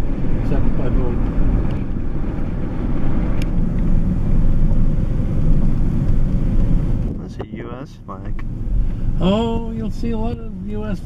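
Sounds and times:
car engine and tyres rumbling: 0:00.0 - 0:11.0.

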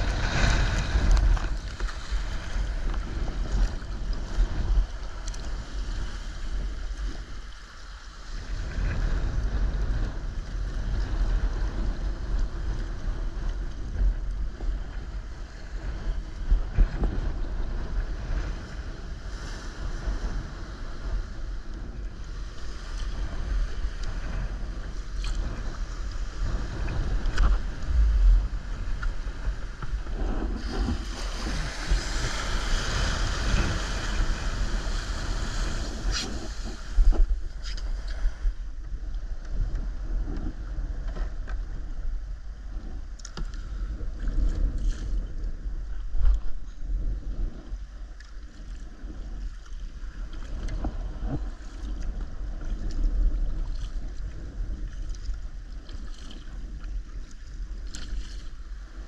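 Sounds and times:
small waves breaking: 0:00.0 - 0:09.3, 0:18.2 - 0:38.8
water splashing along hull: 0:00.0 - 0:59.0
wind buffeting microphone: 0:00.0 - 0:59.0.

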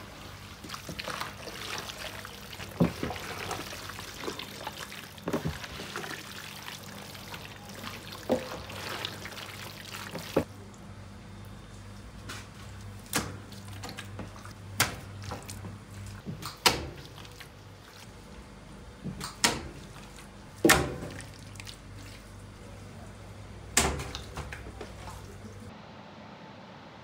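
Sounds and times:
wet slaps of raw chicken: 0:12.3 - 0:13.4.

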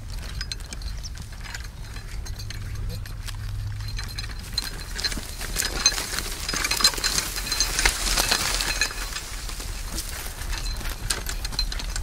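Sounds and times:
metal chains clinking and rattling: 0:00.0 - 0:12.0.

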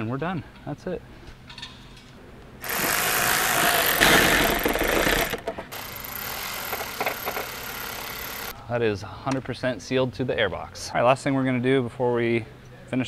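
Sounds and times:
power tool whirring and rattling: 0:02.6 - 0:08.5.

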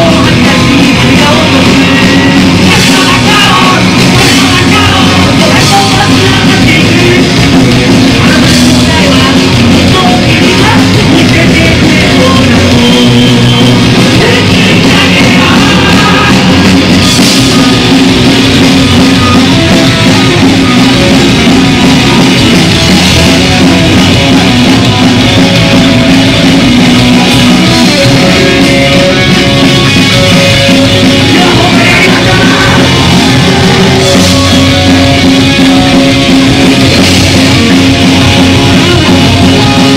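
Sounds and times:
singer shouting vocals: 0:00.0 - 0:17.0, 0:27.7 - 0:36.6, 0:37.4 - 0:39.9
punk rock band playing live: 0:00.0 - 0:39.9.

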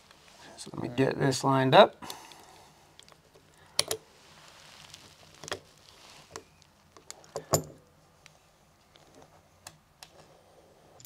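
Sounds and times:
metal parts clicking and tapping: 0:03.8 - 0:04.0, 0:07.0 - 0:07.9
faint rubbing: 0:04.1 - 0:06.8.

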